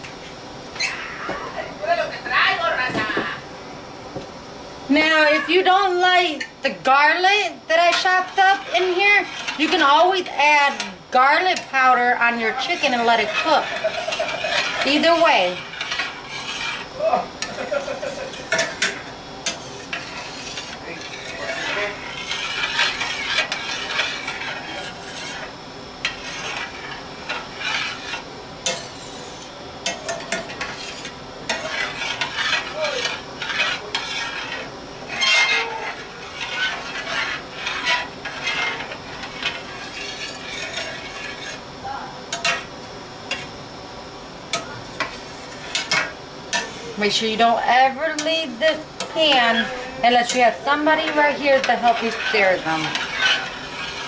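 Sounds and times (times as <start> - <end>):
metal utensil scraping a pan: 7.2 - 41.6, 42.3 - 42.7, 44.5 - 54.0.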